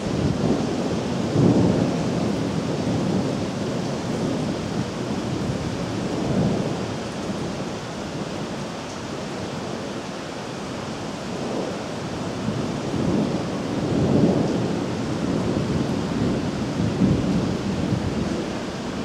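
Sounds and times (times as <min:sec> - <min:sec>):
low rumble of thunder: 0:00.0 - 0:08.6, 0:11.0 - 0:19.0
steady rain: 0:00.0 - 0:19.0.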